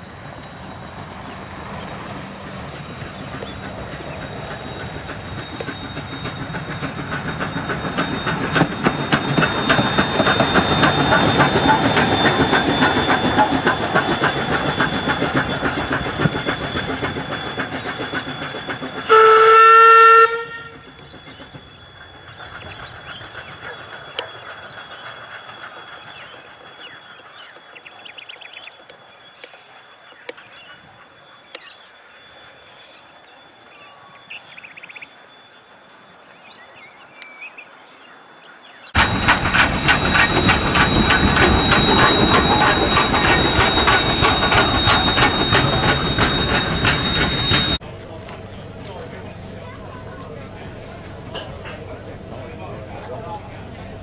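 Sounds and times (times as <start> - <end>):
steam locomotive exhaust beats: 0.0 - 31.6, 39.0 - 54.0
rail clatter: 0.2 - 27.8, 39.0 - 54.0
steam whistle blast: 18.4 - 21.0.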